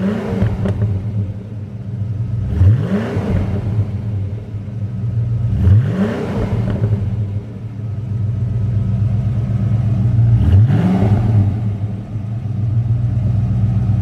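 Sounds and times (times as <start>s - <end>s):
raspy car engine idling: 0.0s - 2.5s, 6.4s - 10.4s, 11.2s - 14.0s
engine revving: 0.0s - 14.0s.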